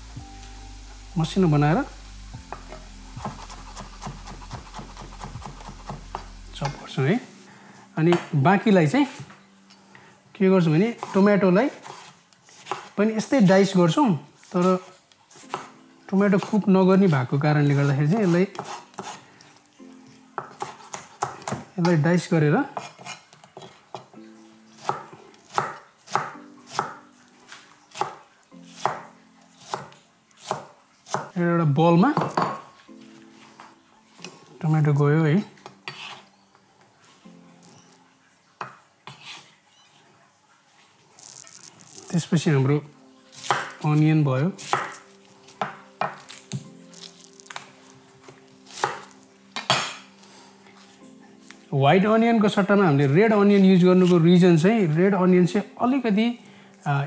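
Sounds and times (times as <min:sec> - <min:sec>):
knife chopping on cutting board: 0:02.5 - 0:06.8, 0:11.8 - 0:12.9, 0:17.8 - 0:19.2, 0:20.4 - 0:21.7, 0:24.8 - 0:27.0, 0:28.8 - 0:29.0, 0:29.6 - 0:31.3, 0:43.4 - 0:43.8, 0:44.6 - 0:46.7, 0:48.7 - 0:50.0.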